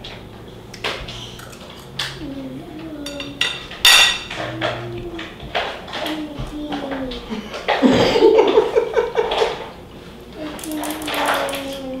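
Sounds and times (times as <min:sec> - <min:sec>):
fork clinking on a plate: 0:03.0 - 0:04.8.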